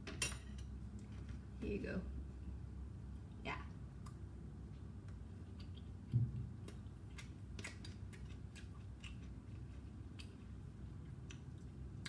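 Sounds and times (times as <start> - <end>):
quiet eating: 3.0 - 12.0.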